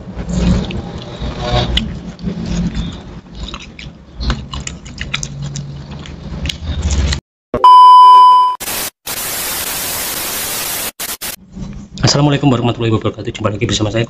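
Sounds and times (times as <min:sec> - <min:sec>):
crunchy chewing: 0:01.7 - 0:07.2
high test tone beep: 0:07.6 - 0:08.6
tv static hiss: 0:08.4 - 0:11.4.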